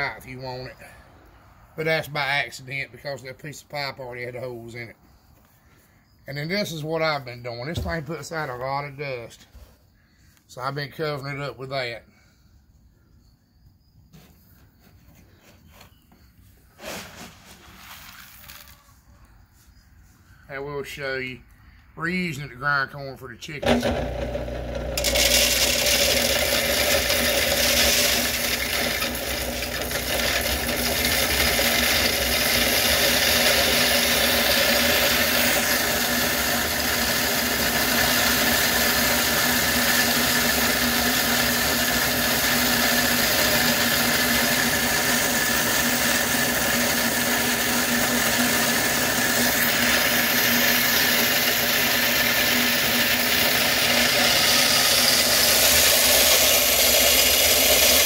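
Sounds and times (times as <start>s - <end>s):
electric corn grinder running: 23.6s - 58.0s.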